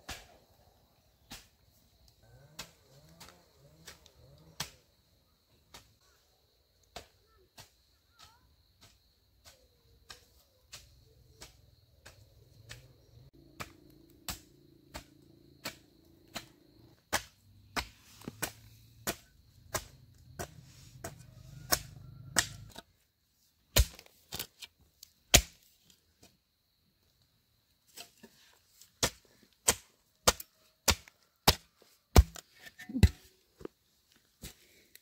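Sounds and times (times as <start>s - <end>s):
hoe chopping into soil: 13.6s - 22.8s, 23.7s - 24.6s, 25.3s - 25.7s, 29.0s - 33.4s.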